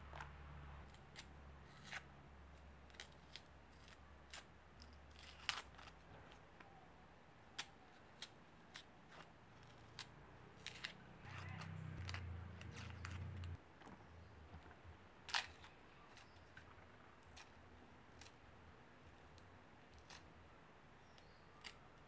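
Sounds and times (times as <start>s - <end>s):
onion skin crackling: 0.8s - 6.8s, 21.0s - 22.0s.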